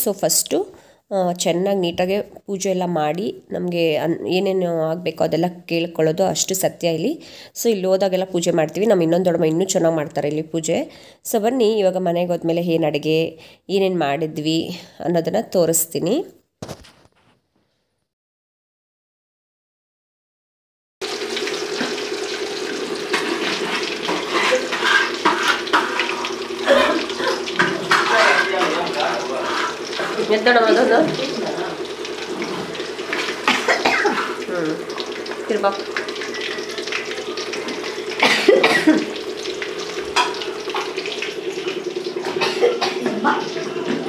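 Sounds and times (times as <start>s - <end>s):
oil crackling pops: 16.6s - 17.2s, 21.1s - 30.4s, 31.1s - 42.8s
chicken sizzling in hot oil: 21.0s - 44.0s
spoon stirring: 23.1s - 30.5s.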